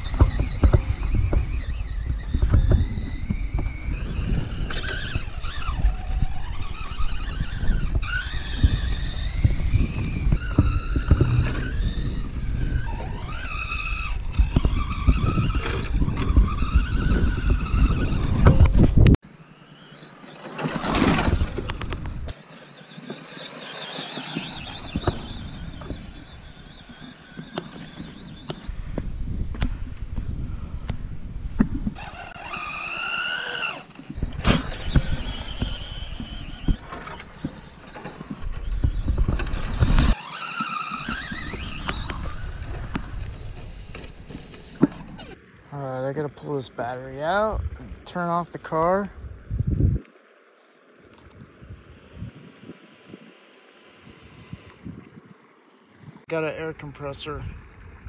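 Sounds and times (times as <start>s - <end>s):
wind rumble on microphone: 0.0s - 19.2s, 28.1s - 32.6s, 34.1s - 40.2s, 47.4s - 48.0s, 48.9s - 50.1s, 51.3s - 53.3s, 54.0s - 55.4s
electric motor whining: 0.0s - 45.4s, 51.1s - 55.0s.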